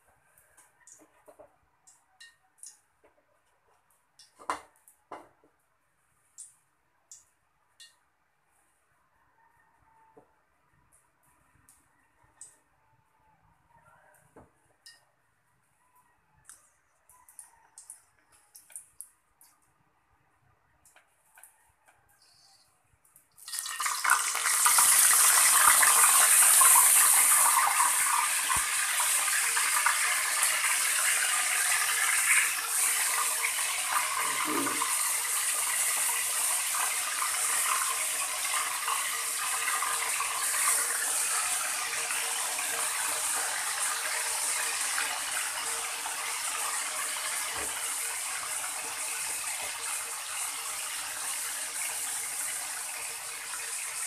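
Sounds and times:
meat sizzling in hot oil: 23.4 - 54.0.

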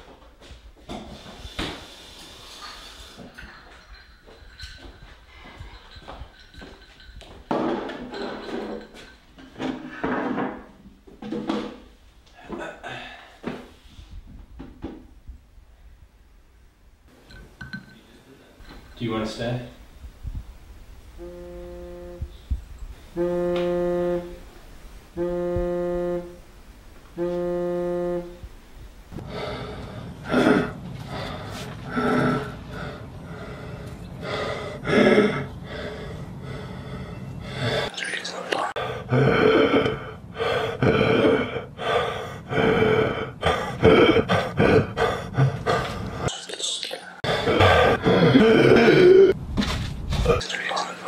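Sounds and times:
low steady horn-like tone: 21.0 - 29.2.

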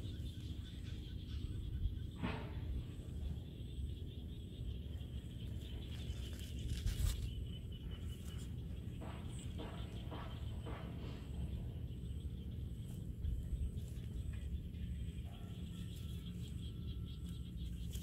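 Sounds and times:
steady high drone: 0.0 - 18.0
rustling: 6.0 - 7.4.

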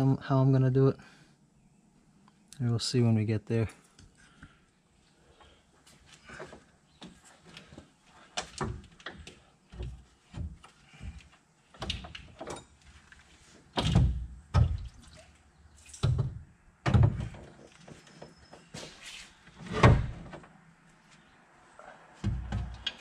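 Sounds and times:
radiator knocks and clunks: 16.0 - 18.7, 22.2 - 23.0.

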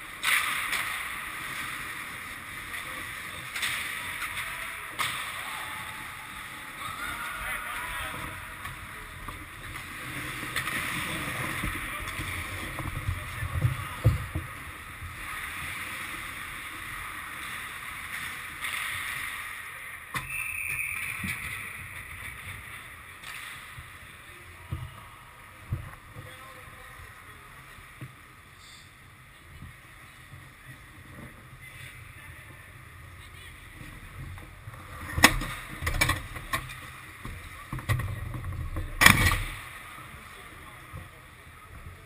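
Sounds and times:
hockey sticks and puck clacking: 0.1 - 5.4, 18.2 - 19.4, 23.2 - 24.0
indistinct shouting: 5.2 - 8.5.

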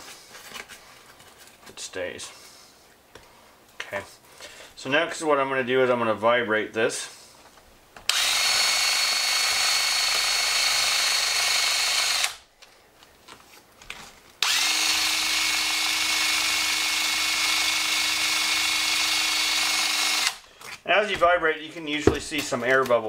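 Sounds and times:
cordless drill running: 8.1 - 12.4, 14.4 - 20.4.

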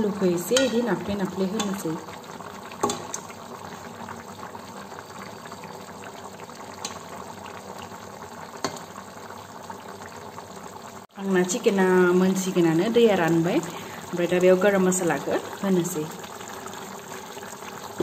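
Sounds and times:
curry simmering and bubbling: 0.0 - 18.0
metal spoon clicking on pan: 0.5 - 0.9, 1.6 - 1.8.

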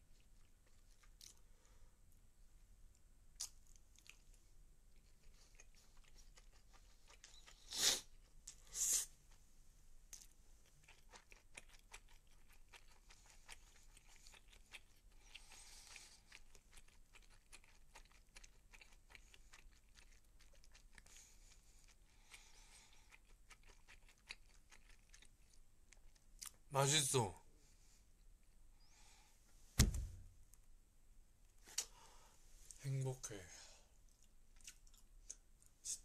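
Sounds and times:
person chewing: 0.0 - 1.5, 3.4 - 9.4, 10.1 - 26.6, 34.0 - 36.0.

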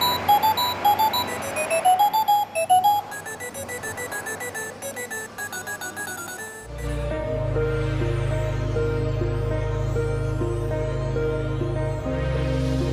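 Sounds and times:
electronic beeping melody: 0.0 - 7.4.

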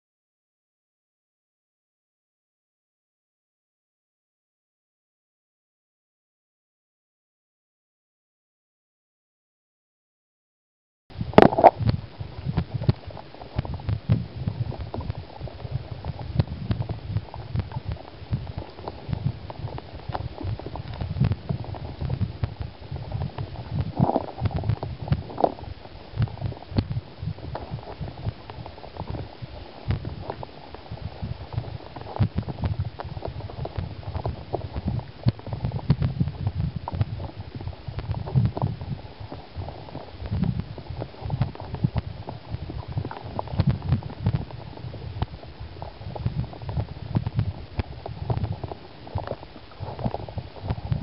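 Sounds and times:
underwater stream rumble and gurgle: 11.1 - 51.0.

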